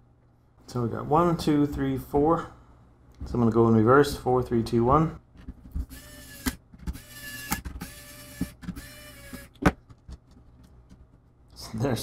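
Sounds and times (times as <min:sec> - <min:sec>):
electric screwdriver motor whining: 0:05.9 - 0:09.6.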